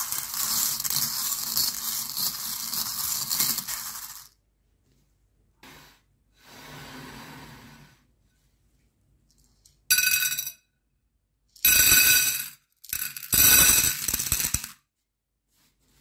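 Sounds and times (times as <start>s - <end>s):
candy clattering onto glass plate: 11.6s - 14.8s.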